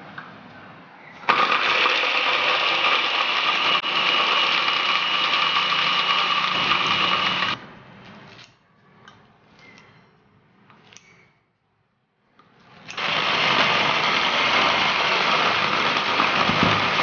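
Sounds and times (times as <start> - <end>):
small electric motor running: 1.3 - 7.6, 13.0 - 17.0.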